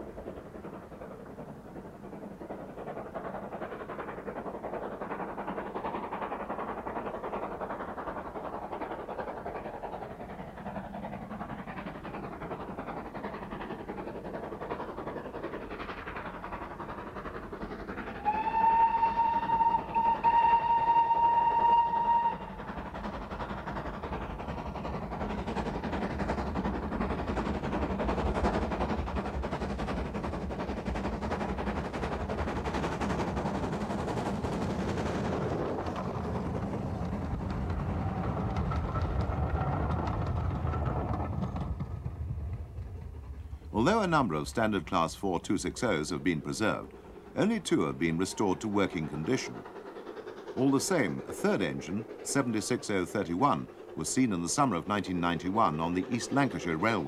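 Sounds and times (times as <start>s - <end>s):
steam locomotive exhaust beats: 0.0s - 57.0s
steam locomotive whistle: 18.2s - 22.6s.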